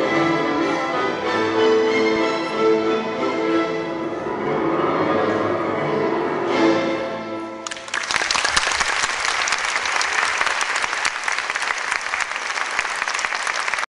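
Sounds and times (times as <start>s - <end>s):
music: 0.0s - 8.5s
audience applauding: 7.6s - 14.0s.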